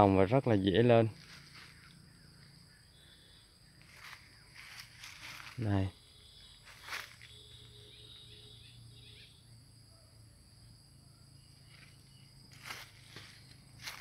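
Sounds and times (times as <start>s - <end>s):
high-pitched insect chorus: 0.0s - 14.0s
footstep in dry leaves: 1.1s - 2.0s, 3.8s - 5.7s, 6.6s - 7.4s, 11.7s - 14.0s.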